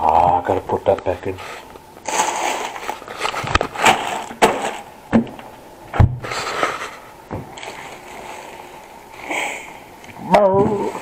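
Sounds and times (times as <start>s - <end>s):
packaging rustling: 1.4s - 5.5s
frozen food packages knocking: 2.0s - 5.4s
heavy thump: 3.9s - 6.3s.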